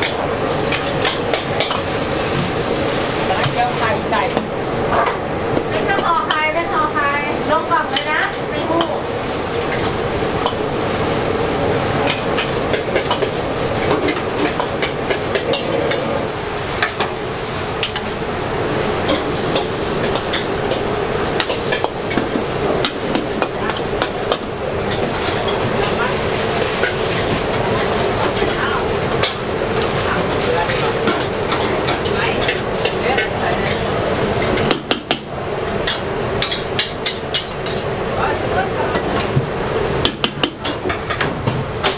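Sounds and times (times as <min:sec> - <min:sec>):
frying hiss: 0:00.0 - 0:41.9
noodles sizzling in a wok: 0:00.0 - 0:41.9
metal ladle scraping a wok: 0:35.8 - 0:38.0.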